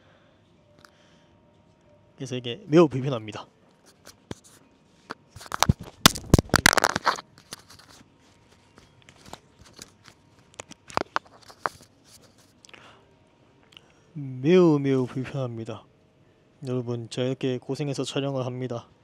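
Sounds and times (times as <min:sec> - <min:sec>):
phone handling crackles: 0:05.1 - 0:12.4.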